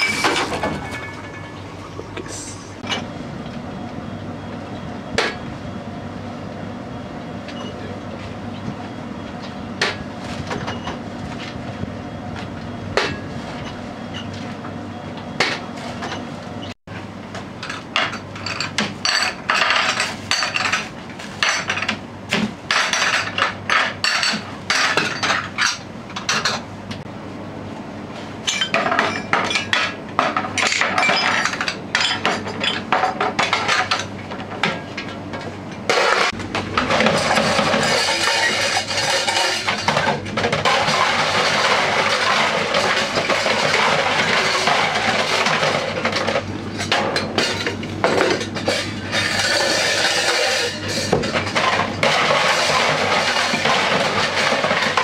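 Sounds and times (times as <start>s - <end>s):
dishes clattering in a sink: 28.5s - 34.9s, 35.9s - 55.0s.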